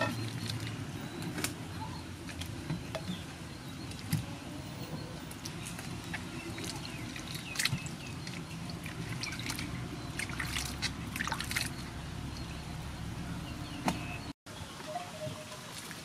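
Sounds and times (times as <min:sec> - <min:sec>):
water splashing in metal basin: 0:00.0 - 0:01.0, 0:05.3 - 0:12.0
water trickling and dripping: 0:00.0 - 0:12.8, 0:14.6 - 0:16.0.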